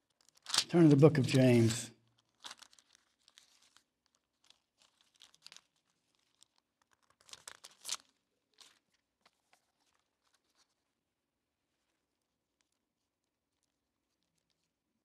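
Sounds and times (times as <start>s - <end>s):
book pages rustling: 0.3s - 10.8s.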